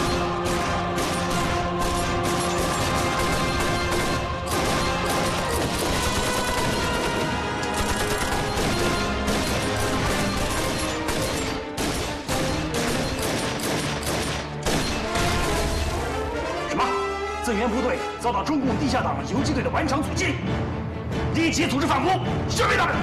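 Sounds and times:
gunshots: 0:00.0 - 0:16.1
background music: 0:00.0 - 0:23.0.

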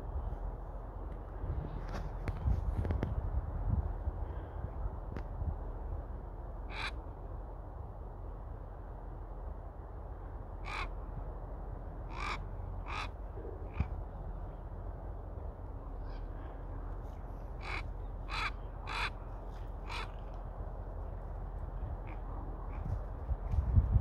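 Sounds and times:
raven calling: 0:06.6 - 0:07.1, 0:10.6 - 0:11.0, 0:12.0 - 0:14.1, 0:17.4 - 0:20.4, 0:22.0 - 0:23.0.

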